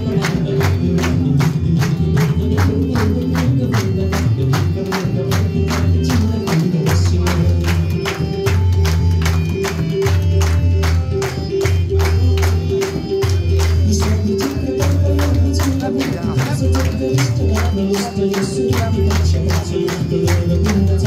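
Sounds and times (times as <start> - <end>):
person singing: 0.0 - 8.4, 13.6 - 21.0.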